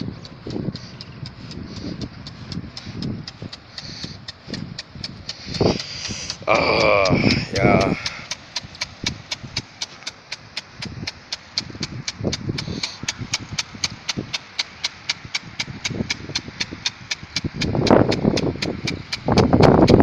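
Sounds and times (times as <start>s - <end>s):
impact sprinkler ticking: 0.0s - 20.0s
water spray hissing: 0.0s - 20.0s
loud rush of noise: 5.5s - 8.2s.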